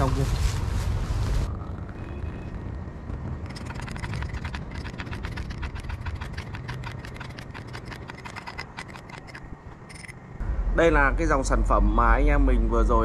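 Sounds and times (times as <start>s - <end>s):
footsteps crackling through dry leaves: 0.0s - 1.5s.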